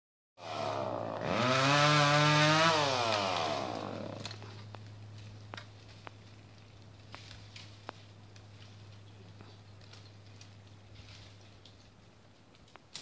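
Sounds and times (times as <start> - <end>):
chainsaw revving: 0.4 - 4.4.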